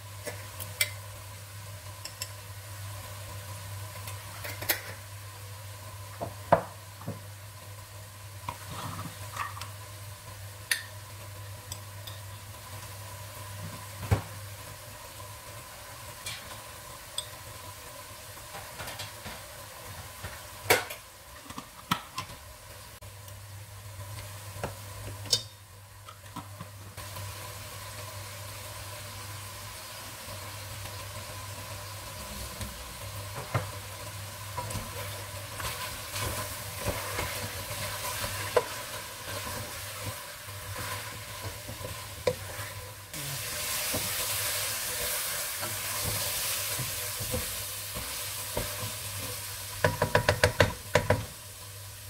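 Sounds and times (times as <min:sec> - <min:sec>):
food sizzling in a pot: 0:00.0 - 0:52.0
spoon knocking against pot: 0:49.8 - 0:51.3.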